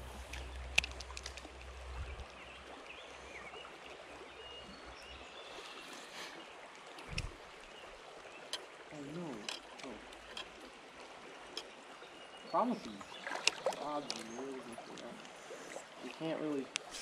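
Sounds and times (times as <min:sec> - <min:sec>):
stream flowing and rippling: 0:00.0 - 0:17.0.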